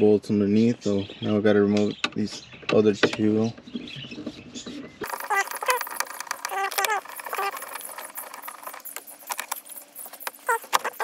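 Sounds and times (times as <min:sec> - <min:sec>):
high squeaky chirps: 0:04.7 - 0:11.0
hand tools clicking and rattling: 0:05.0 - 0:11.0.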